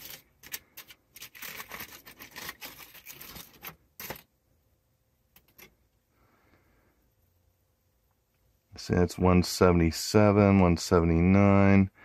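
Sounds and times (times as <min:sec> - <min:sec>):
foil crackle: 0:00.0 - 0:04.2
aluminium foil crinkling: 0:00.0 - 0:04.3.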